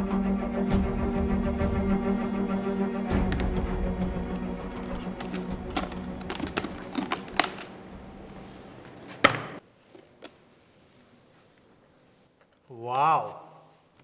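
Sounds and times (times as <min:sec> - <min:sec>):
case knocking down with ring: 0:03.2 - 0:08.2
briefcase metallic clicks and rattles: 0:03.2 - 0:08.3.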